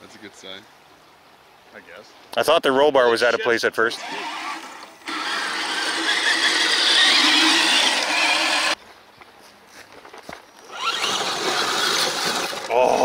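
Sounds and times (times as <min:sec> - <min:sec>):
rc crawler motor whine: 0:03.9 - 0:08.8, 0:10.6 - 0:13.0
rc truck motor and gear whine: 0:03.9 - 0:08.8, 0:10.6 - 0:13.0.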